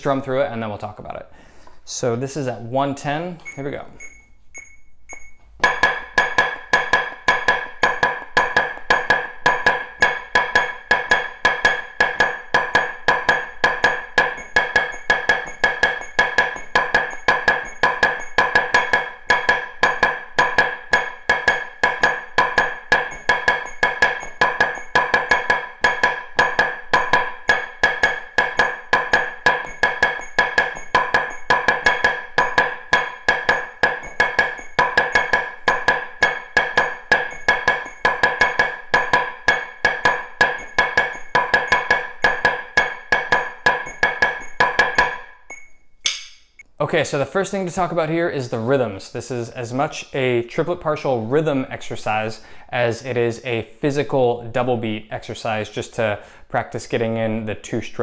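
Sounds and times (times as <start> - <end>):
metronome clicking: 3.4 - 5.5
drumsticks tapping practice pad: 3.4 - 46.7.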